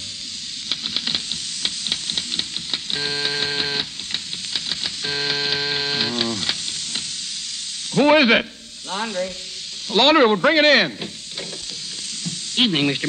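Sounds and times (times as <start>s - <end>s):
frying sizzle: 0.0s - 13.0s
typewriter clacking: 0.7s - 6.8s
door buzzer: 2.9s - 4.0s, 5.0s - 6.6s.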